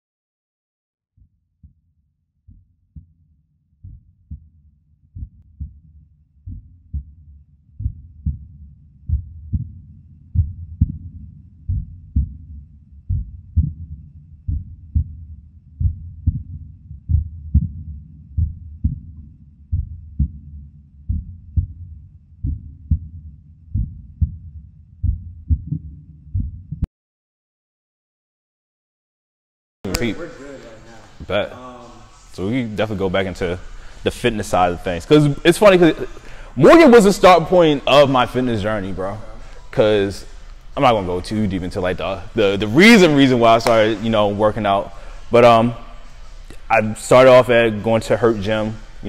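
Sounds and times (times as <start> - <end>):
heartbeat-like double thump: 1.2 - 3.2, 3.8 - 26.9.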